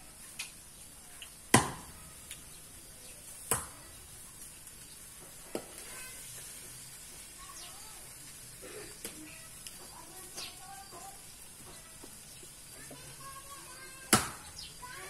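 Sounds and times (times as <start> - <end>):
loud wood fire pops: 1.2 - 2.6, 3.4 - 6.0, 13.9 - 15.0.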